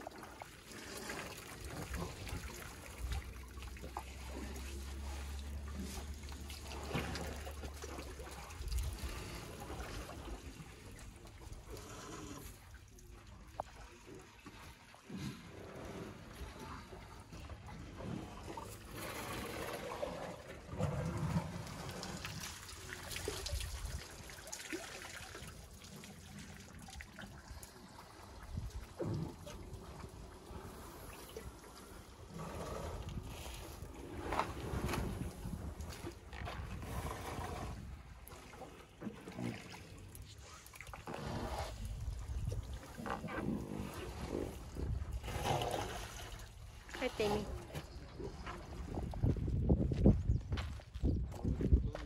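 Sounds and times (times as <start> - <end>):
water trickling and splashing: 0.0 - 52.0.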